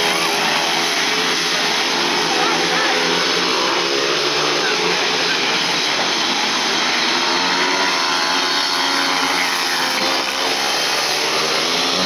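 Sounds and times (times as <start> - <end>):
motorcycle engines racing: 0.0 - 12.0.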